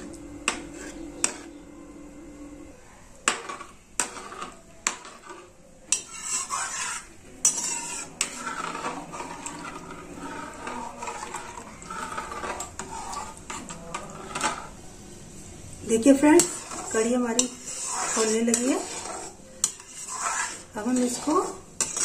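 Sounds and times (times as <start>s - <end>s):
metal spoon clinking on pan: 3.3s - 8.8s, 17.3s - 18.9s, 19.6s - 22.0s
spoon scraping and swishing: 3.4s - 14.8s, 16.0s - 22.0s.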